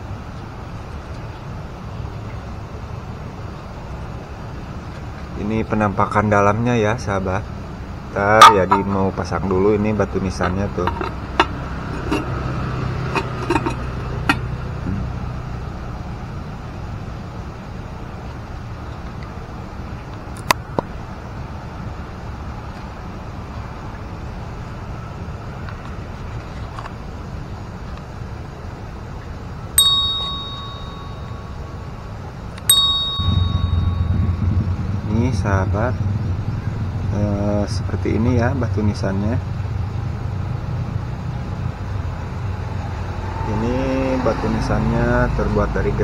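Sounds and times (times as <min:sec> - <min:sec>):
low background rumble: 0:29.6 - 0:38.8
bell-like dings: 0:29.8 - 0:31.9, 0:32.6 - 0:34.5.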